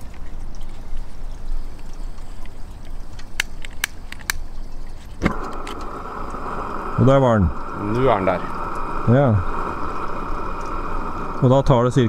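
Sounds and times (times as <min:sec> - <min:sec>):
lighter sparking clicks: 0:03.1 - 0:04.5, 0:05.2 - 0:06.8
low rushing noise: 0:05.2 - 0:12.0.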